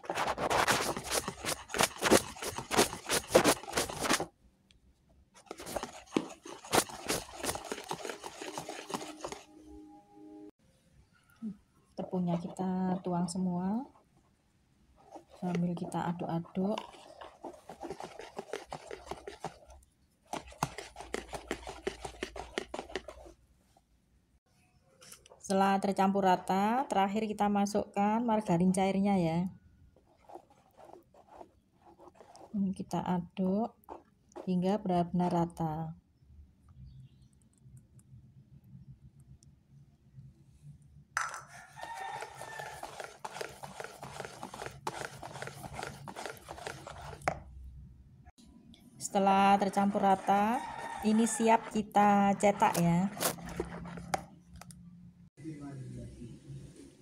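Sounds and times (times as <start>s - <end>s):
whisk clicking in a bowl: 5.5s - 9.4s, 16.7s - 19.7s, 20.3s - 23.3s, 41.8s - 47.4s
rooster crowing: 41.4s - 43.0s, 50.3s - 51.6s.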